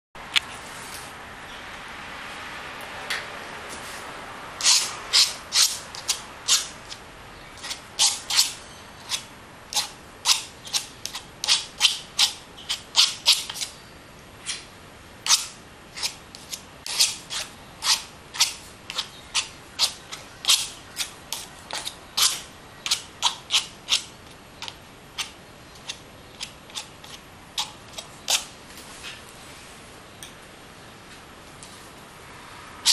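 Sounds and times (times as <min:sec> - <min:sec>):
palette knife scraping paint: 0:04.6 - 0:13.8, 0:14.4 - 0:28.6.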